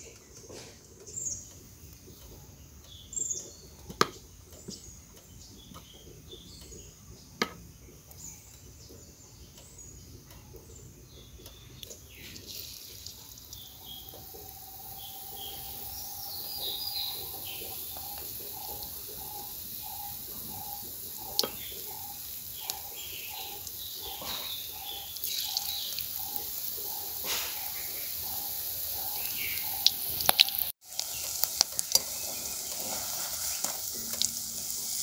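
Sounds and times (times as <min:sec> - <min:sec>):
birds chirping: 0:00.0 - 0:35.0
battered leaf sizzling in oil: 0:11.8 - 0:35.0.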